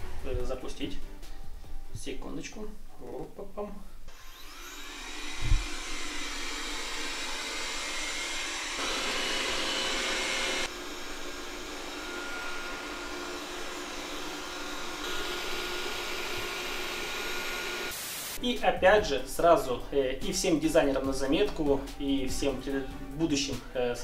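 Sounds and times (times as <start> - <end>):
robot vacuum fan whirring: 4.1 - 18.0.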